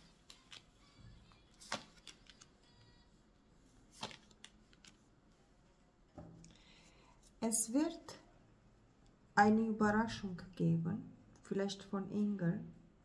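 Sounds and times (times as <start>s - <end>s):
cards clicking and snapping: 0.2s - 0.7s, 1.6s - 2.5s, 4.0s - 5.0s.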